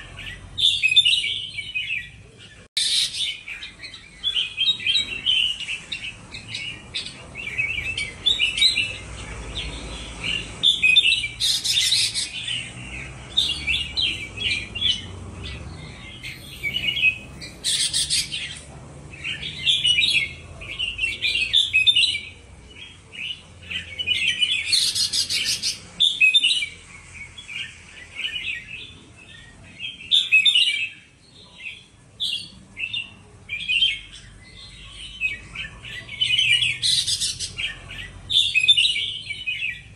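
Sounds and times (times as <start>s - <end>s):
birds chirping and warbling: 0.0s - 39.9s
harsh rasping bird notes: 2.8s - 22.3s.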